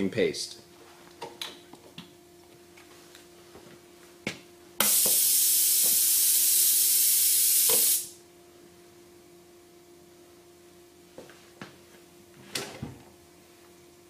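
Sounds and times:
compressed air hissing: 4.8 - 8.2.

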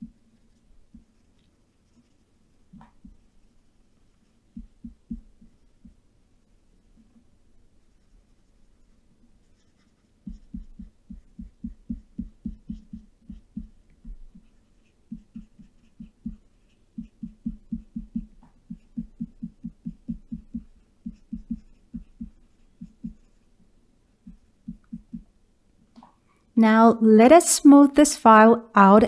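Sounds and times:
soft low thumps: 0.0 - 0.2, 0.8 - 1.2, 2.7 - 3.4, 4.5 - 6.0, 10.2 - 23.4, 24.2 - 25.4.

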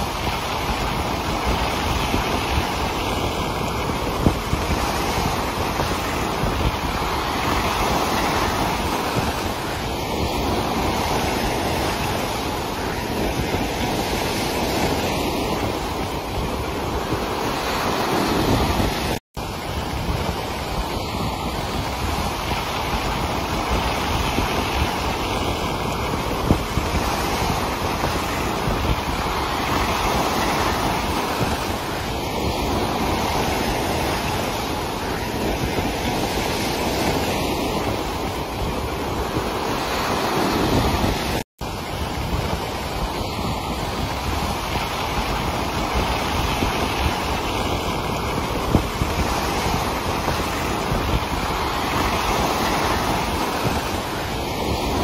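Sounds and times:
sea waves surging: 0.0 - 55.0
wind on microphone: 0.0 - 55.0.

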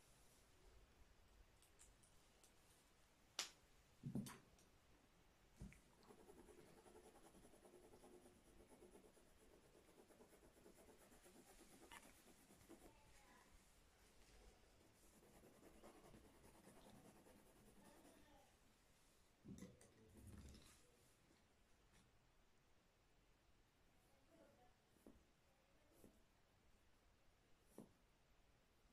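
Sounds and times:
pencil scratching on paper: 6.0 - 12.9, 14.8 - 18.2.

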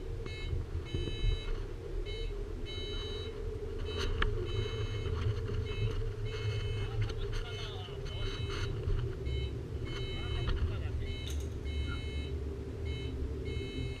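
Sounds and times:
cable car rumble and hum: 0.0 - 14.0
high electronic beeps: 0.2 - 14.0.

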